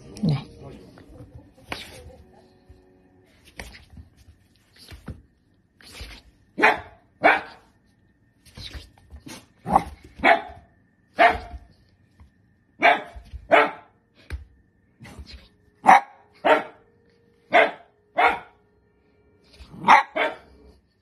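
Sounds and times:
dog barking: 6.6 - 7.7, 9.7 - 11.7, 12.8 - 14.0, 15.8 - 16.8, 17.5 - 18.6, 19.8 - 20.5.

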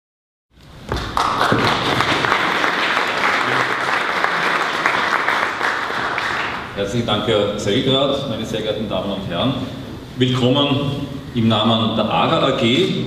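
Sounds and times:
audience applauding: 0.9 - 6.8.

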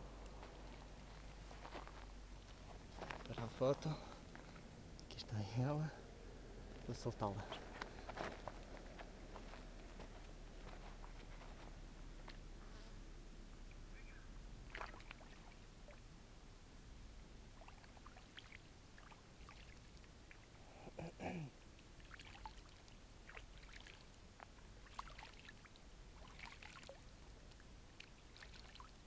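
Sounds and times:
water sloshing and dripping: 14.6 - 16.1, 17.5 - 20.6, 21.8 - 29.0
small clicks and splashes: 14.7 - 16.0, 17.6 - 20.6, 21.8 - 29.0.

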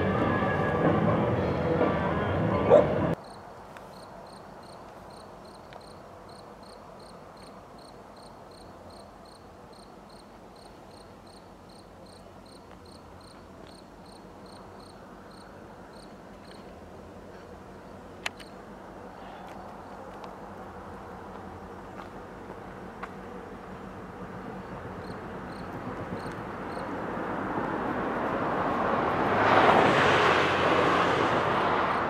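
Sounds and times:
music: 0.0 - 3.1
cricket chirping: 3.2 - 16.7, 24.6 - 27.0.

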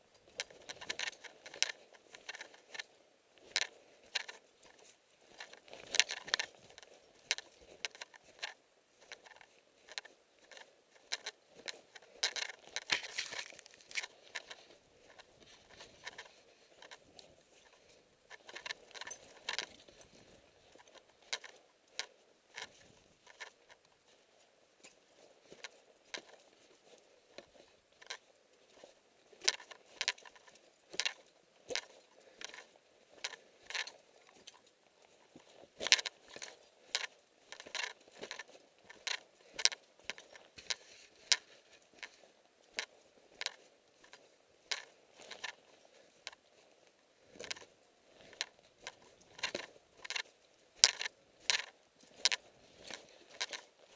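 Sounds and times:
footsteps crunching in snow: 12.5 - 16.4
footsteps crunching through snow: 12.8 - 14.4.

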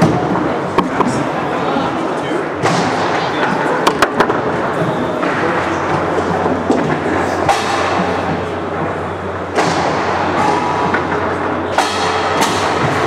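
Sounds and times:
foosball ball and rods clacking: 0.0 - 1.3, 3.8 - 4.6, 5.2 - 13.0.

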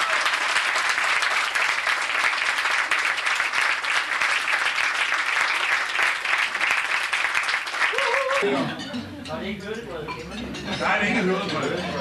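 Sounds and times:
people applauding: 0.0 - 8.5.

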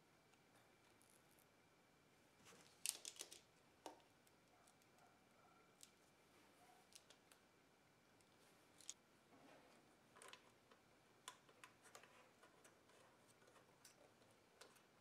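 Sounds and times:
small clicks and taps: 10.1 - 14.9.

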